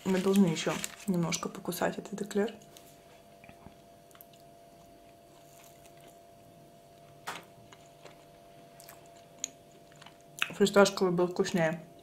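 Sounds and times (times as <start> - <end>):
low room hum: 0.0 - 12.0.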